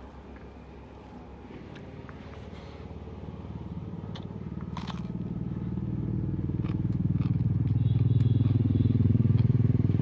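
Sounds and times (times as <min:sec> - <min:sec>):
vehicle engine approaching: 0:00.0 - 0:10.0
crunching eating sounds: 0:03.9 - 0:09.8.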